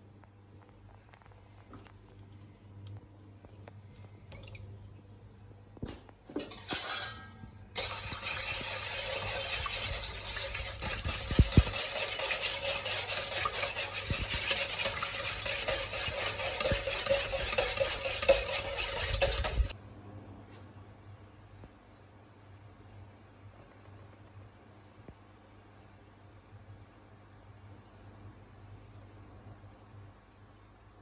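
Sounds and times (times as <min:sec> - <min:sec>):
whisk knocking against bowl: 0:07.8 - 0:19.8.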